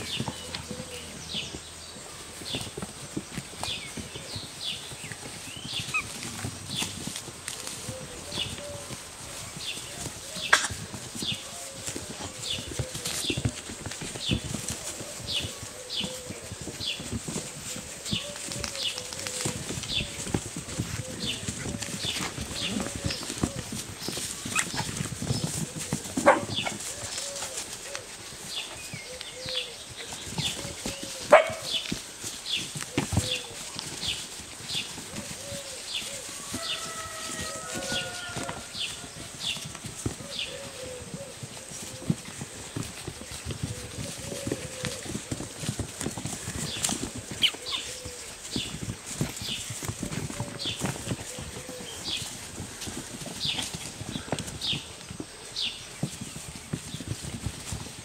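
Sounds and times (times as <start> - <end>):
puppies scuffling on mats: 0.0 - 58.0
puppy barks: 26.2 - 26.5, 31.3 - 31.7.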